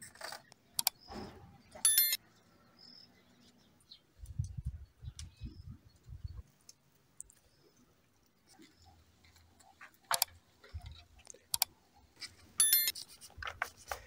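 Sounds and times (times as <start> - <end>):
birds chirping: 0.4 - 12.9
wind buffeting microphone: 4.2 - 6.4.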